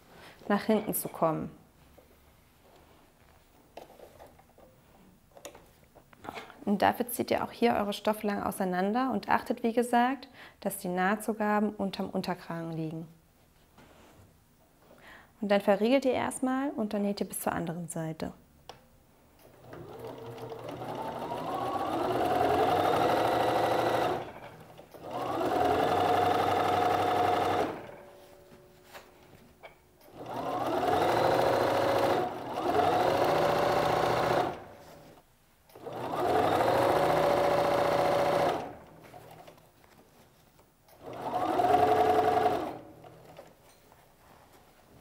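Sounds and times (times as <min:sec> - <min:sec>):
sewing machine stitching: 0:19.5 - 0:28.0, 0:30.1 - 0:35.0, 0:35.8 - 0:39.6, 0:41.0 - 0:43.5.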